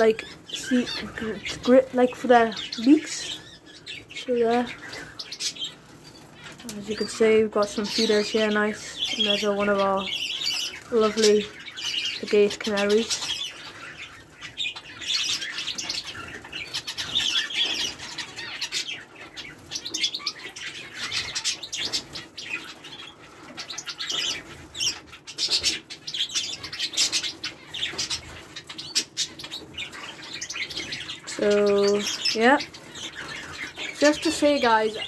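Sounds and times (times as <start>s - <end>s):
birds chirping: 0.0s - 35.0s.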